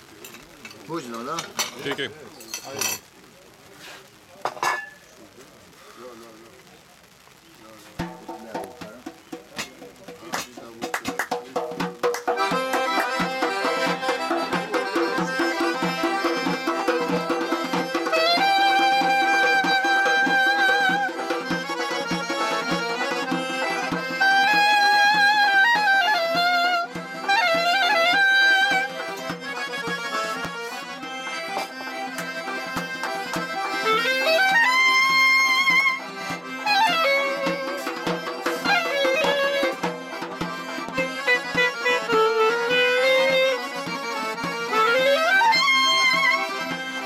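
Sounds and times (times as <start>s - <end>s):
frame drum beat: 8.0s - 47.0s
accordion chords: 8.2s - 47.0s
clarinet melody: 12.4s - 47.0s.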